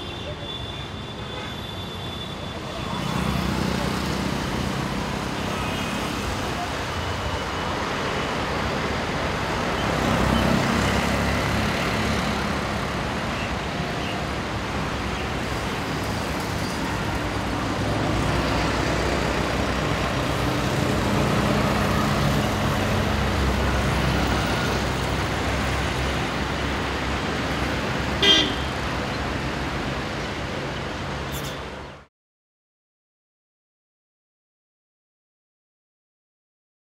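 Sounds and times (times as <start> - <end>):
passing motor vehicles: 2.7 - 32.0
car horn toots: 28.2 - 28.7.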